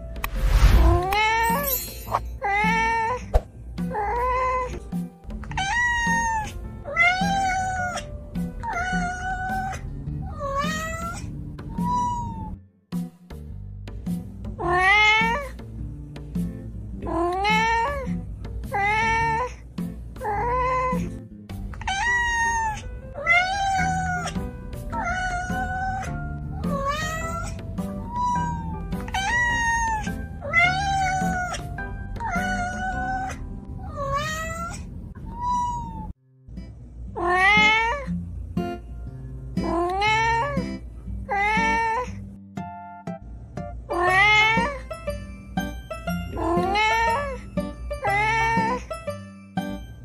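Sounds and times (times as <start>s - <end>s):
background music with low beat: 3.3s - 8.8s, 12.9s - 19.0s
cat meowing: 5.5s - 12.6s, 14.6s - 15.6s, 17.0s - 19.5s, 21.8s - 36.1s, 37.2s - 38.1s, 39.6s - 40.7s, 41.3s - 42.2s, 43.9s - 44.9s, 46.3s - 48.9s.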